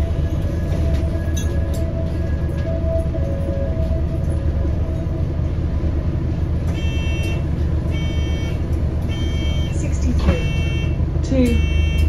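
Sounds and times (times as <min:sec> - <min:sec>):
bus engine and road rumble: 0:00.0 - 0:12.0
high electronic beeps: 0:08.0 - 0:11.0.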